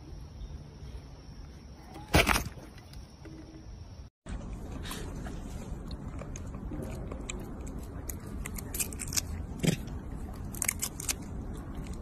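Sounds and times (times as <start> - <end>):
monkey chewing crunchy fruit: 4.3 - 12.0.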